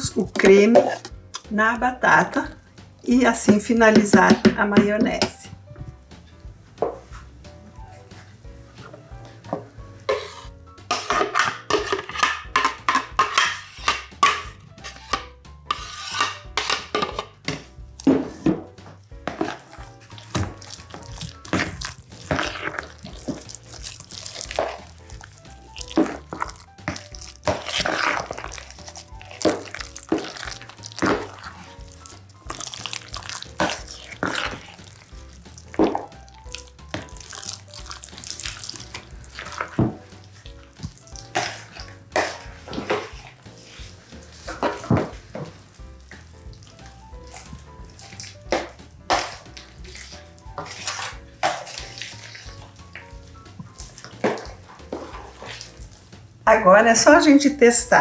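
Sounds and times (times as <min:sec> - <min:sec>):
spoon stirring wet squelching: 0:00.0 - 0:58.0.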